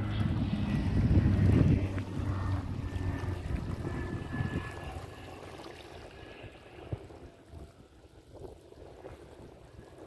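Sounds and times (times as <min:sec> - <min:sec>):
lake water lapping: 0:00.0 - 0:10.0
wind buffeting the microphone: 0:00.0 - 0:10.0.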